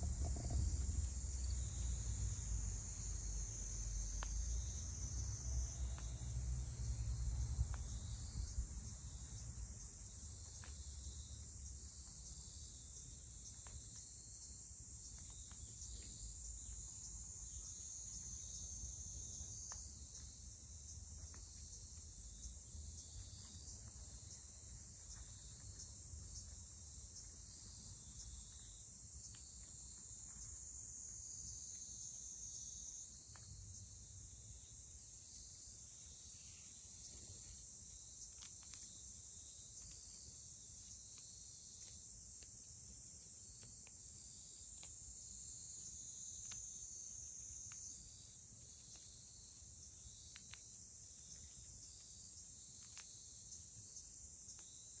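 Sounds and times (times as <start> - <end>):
insects chirring: 0.0 - 55.0.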